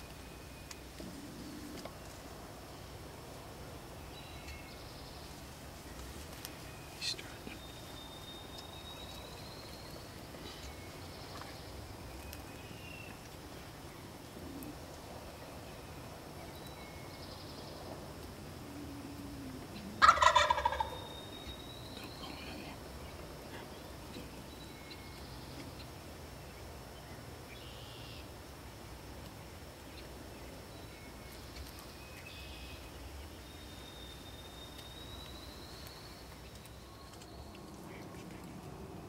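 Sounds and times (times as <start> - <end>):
faint songbird chirps: 3.7 - 18.0, 19.1 - 28.4, 29.4 - 38.8
turkey gobbling: 20.0 - 21.1.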